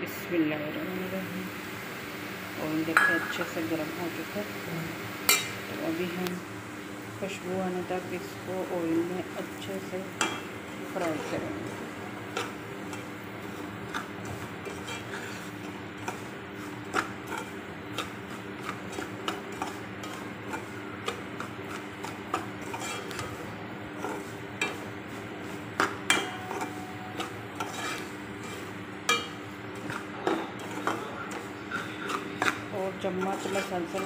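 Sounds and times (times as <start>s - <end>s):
metal spoon scraping steel pot: 14.6s - 16.1s, 22.6s - 23.2s, 26.1s - 34.0s.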